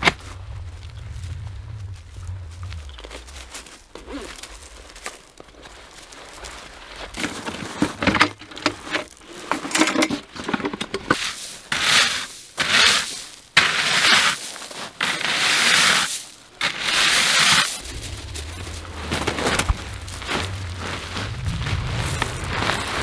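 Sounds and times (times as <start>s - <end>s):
paddle scraping through shingle: 7.1s - 23.0s.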